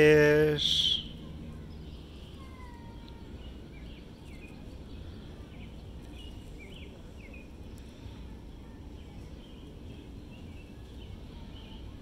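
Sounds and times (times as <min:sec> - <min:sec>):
low outdoor background rumble: 0:00.0 - 0:12.0
thin drawn-out whistles: 0:00.6 - 0:01.2.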